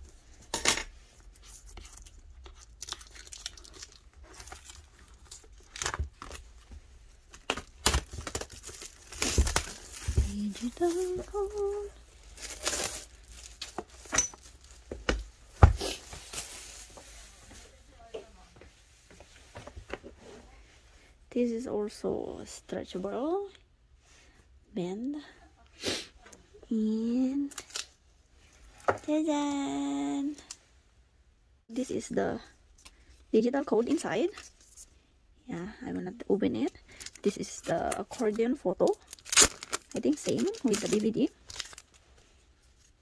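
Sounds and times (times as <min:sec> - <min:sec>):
packaging tearing and crinkling: 0:01.8 - 0:06.5, 0:07.3 - 0:14.8, 0:37.8 - 0:42.0.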